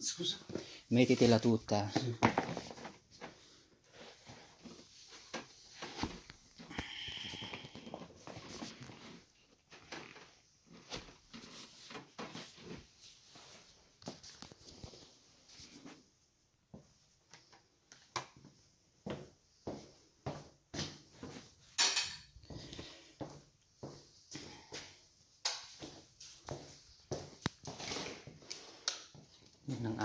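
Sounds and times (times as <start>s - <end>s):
footsteps on tiles: 18.4s - 21.7s, 22.3s - 29.6s
footsteps on wooden floor: 22.5s - 25.0s, 25.8s - 28.4s.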